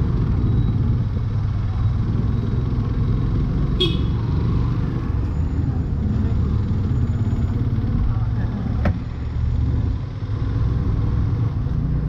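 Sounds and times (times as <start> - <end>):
motorcycle engine running: 0.0 - 8.8
vehicle horn toot: 3.8 - 4.2.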